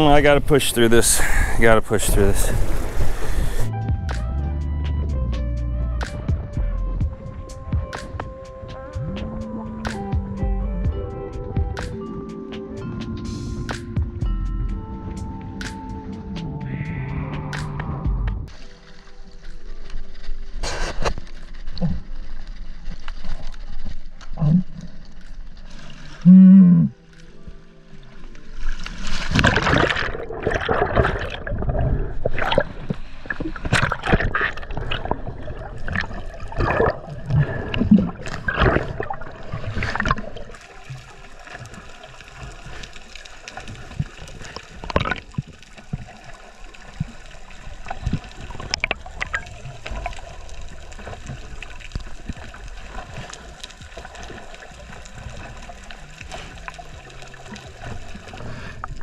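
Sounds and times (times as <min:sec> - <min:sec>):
muffled underwater hiss: 0:00.0 - 0:03.7, 0:18.5 - 0:22.6, 0:31.7 - 0:59.0
water splashing and gurgling: 0:00.0 - 0:03.7, 0:18.4 - 0:59.0.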